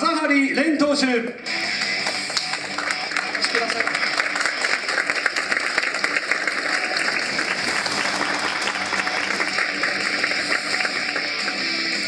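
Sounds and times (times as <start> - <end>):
audience applauding: 1.7 - 12.0.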